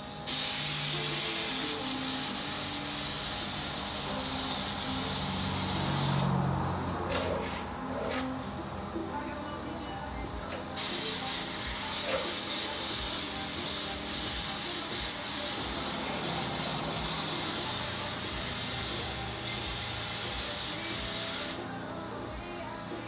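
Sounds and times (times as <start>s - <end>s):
spray gun hissing: 0.0s - 6.6s, 10.6s - 21.8s.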